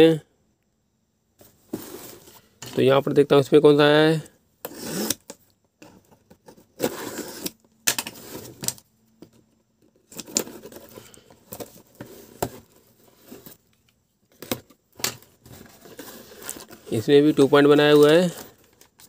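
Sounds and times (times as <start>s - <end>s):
utility knife slitting tape: 4.7s - 5.3s.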